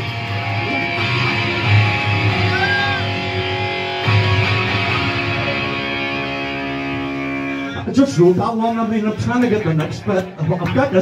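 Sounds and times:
low bass line: 0.0s - 10.7s
electric guitar chords: 0.0s - 11.0s
live rock band playing: 0.0s - 11.0s.

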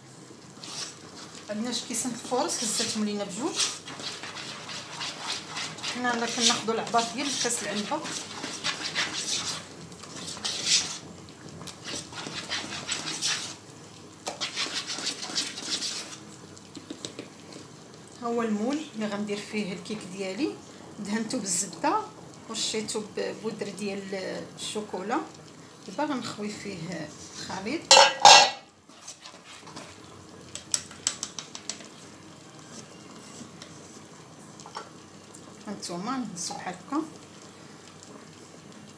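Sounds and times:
whisk beating batter: 2.2s - 11.1s, 11.7s - 13.6s, 14.2s - 16.2s.

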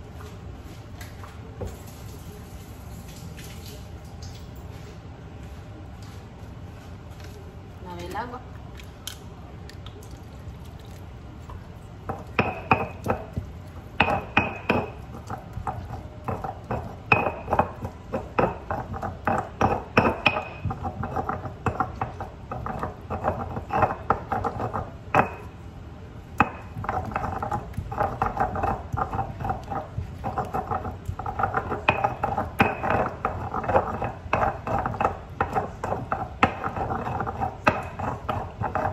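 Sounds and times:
stone pestle grinding in mortar: 12.1s - 25.6s, 26.4s - 38.9s.

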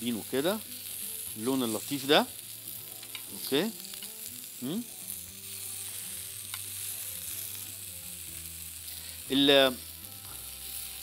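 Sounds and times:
vegetables sizzling on grill pan: 0.0s - 11.0s
person vocal sound: 4.6s - 5.0s.

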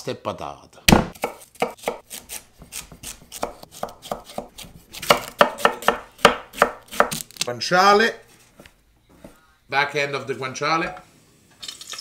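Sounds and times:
knife chopping on wooden board: 0.9s - 7.2s.

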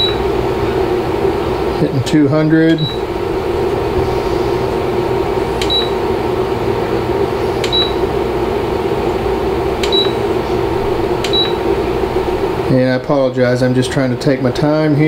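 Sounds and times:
cooktop control panel beeping: 0.0s - 0.4s, 2.6s - 3.1s, 5.6s - 6.1s, 7.6s - 8.2s, 9.8s - 10.4s, 11.2s - 11.8s
cooling fan whir: 0.0s - 15.0s.

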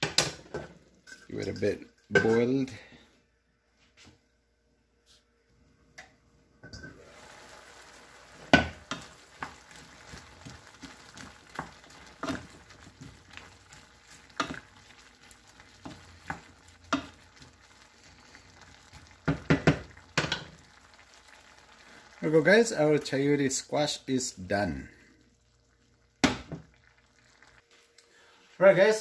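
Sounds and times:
sauce sizzling in a frying pan: 6.9s - 27.8s
spatula knocking and scraping pan: 8.4s - 13.4s, 14.2s - 14.7s, 15.8s - 17.5s, 19.2s - 20.6s.

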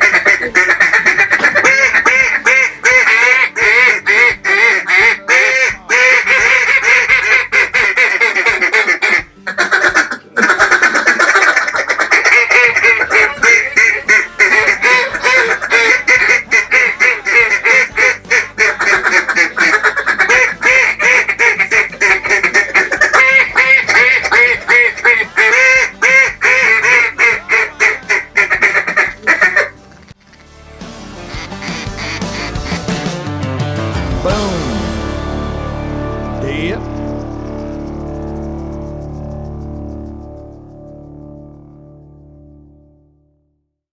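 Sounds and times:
duck calls quacking: 0.0s - 30.5s, 31.2s - 33.1s.

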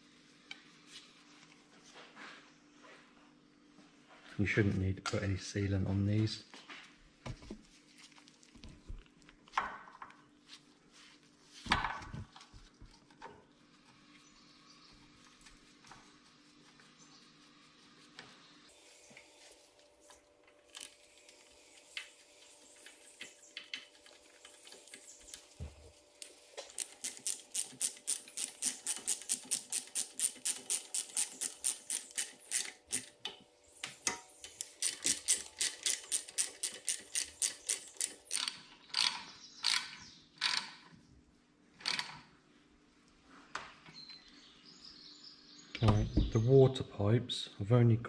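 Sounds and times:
socket ratchet clicking: 26.8s - 33.1s, 34.6s - 40.7s.

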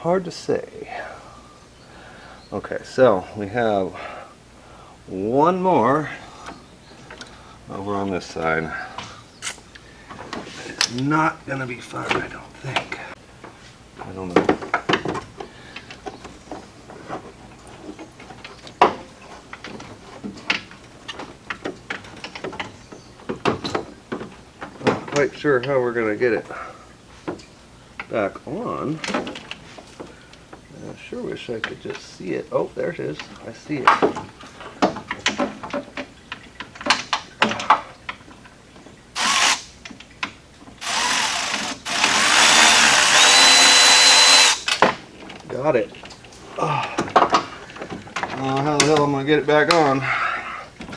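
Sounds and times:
cordless driver motor spinning: 39.2s - 39.7s, 40.8s - 44.7s
hand tools clicking and knocking: 39.2s - 49.1s
faint motor whine: 40.8s - 44.7s.

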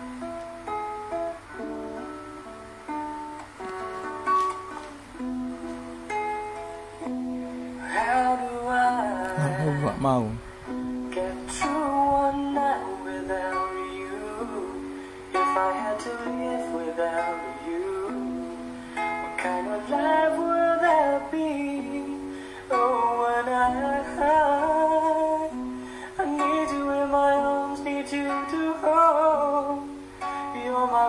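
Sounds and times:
ukulele strumming chords: 0.0s - 31.0s
person singing: 7.8s - 31.0s.

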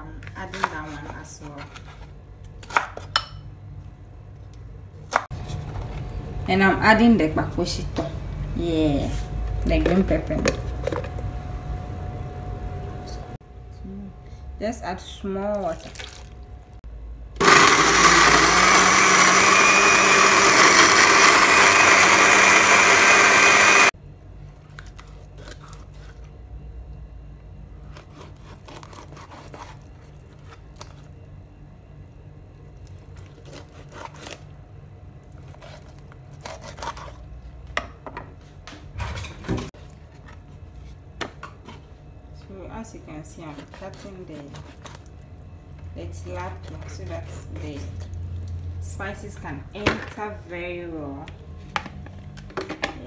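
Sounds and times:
food processor running: 17.4s - 24.0s.

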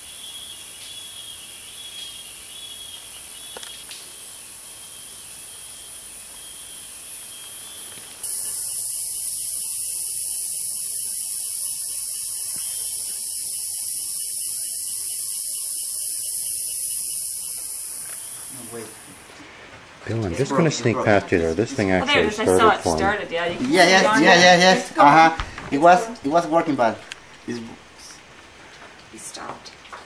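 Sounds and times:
high-pitched insect buzz: 0.0s - 19.3s
insects trilling: 0.0s - 29.9s.

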